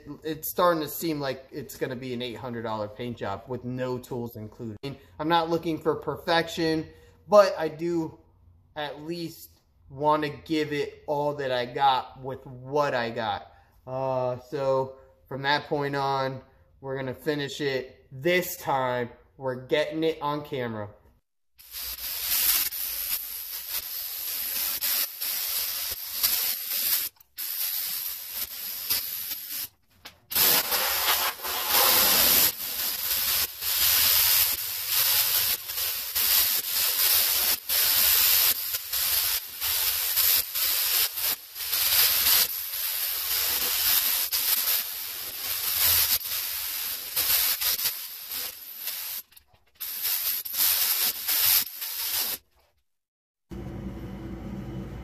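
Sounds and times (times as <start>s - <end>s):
paint spray gun hissing: 30.3s - 49.2s, 49.8s - 52.4s.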